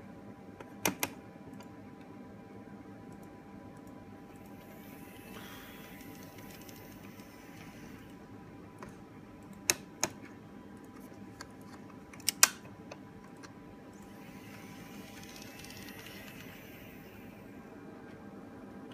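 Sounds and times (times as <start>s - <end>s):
model locomotive whirring: 14.1s - 17.3s.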